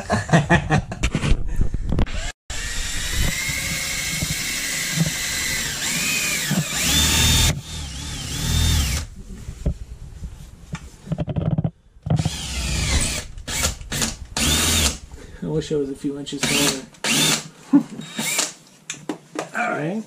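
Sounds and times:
cordless drill whining: 2.1 - 9.1, 12.1 - 15.0, 16.4 - 18.6.

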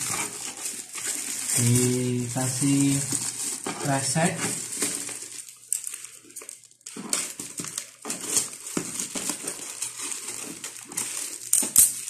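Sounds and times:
plastic bag crinkling and rustling: 0.0 - 12.0
scissors cutting plastic: 4.8 - 12.0.

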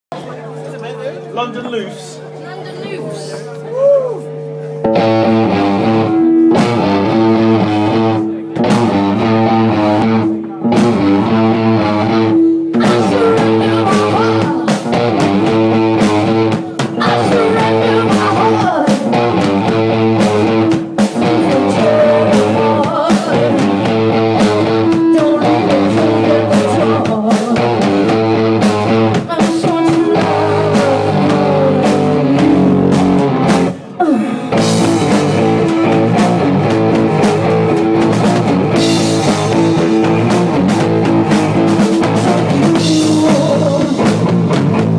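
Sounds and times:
electric guitar: 3.6 - 44.9
drums: 3.7 - 44.9
person singing: 12.6 - 15.1, 16.8 - 19.3, 21.2 - 28.0, 29.1 - 33.0, 33.9 - 36.5, 41.8 - 44.3.

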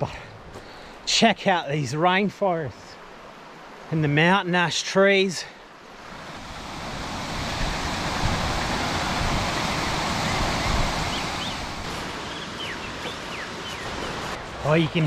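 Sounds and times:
creek water rushing: 0.0 - 15.0
faint bird chirps: 9.8 - 14.2.

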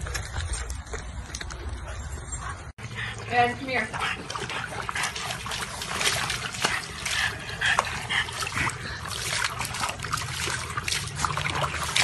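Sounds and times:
water sloshing in a plastic tub: 2.8 - 12.0
water spilling onto concrete: 3.3 - 12.0.

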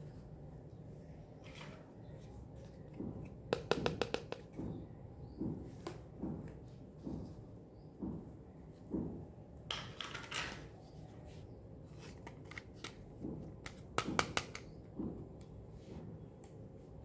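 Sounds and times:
sharp plastic clicks: 13.6 - 14.8.

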